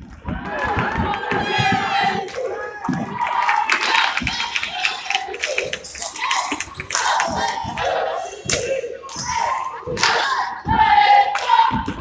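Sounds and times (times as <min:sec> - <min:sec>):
players and spectators calling out: 0:00.2 - 0:12.0.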